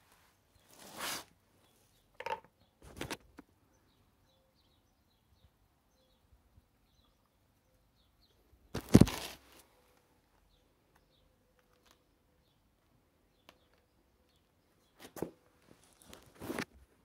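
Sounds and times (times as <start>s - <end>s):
rustling: 0.0s - 1.4s, 8.8s - 10.1s, 14.9s - 16.9s
faint bird chirps: 3.6s - 8.7s.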